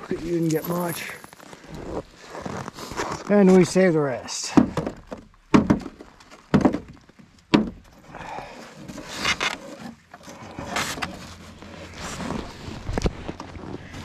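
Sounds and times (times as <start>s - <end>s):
footsteps on hard-packed snow: 0.0s - 3.9s
sharp knocks: 4.5s - 7.8s.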